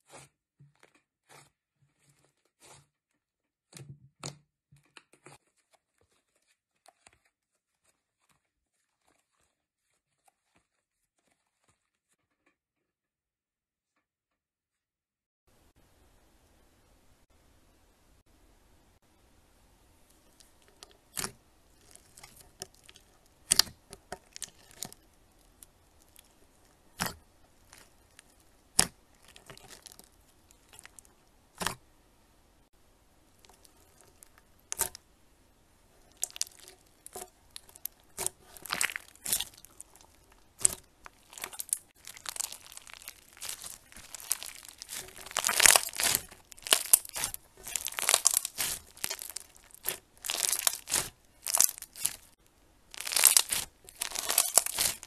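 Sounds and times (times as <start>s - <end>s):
slime crackling and clicking: 20.2s - 31.8s, 33.4s - 35.0s, 36.0s - 55.0s
slime popping: 21.1s - 25.0s, 36.0s - 55.0s.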